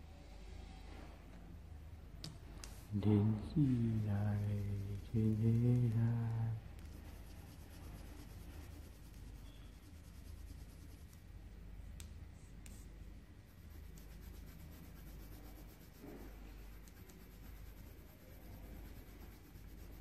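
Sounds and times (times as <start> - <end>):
pencil scratching on paper: 3.4 - 6.1, 6.8 - 11.2, 13.5 - 20.0.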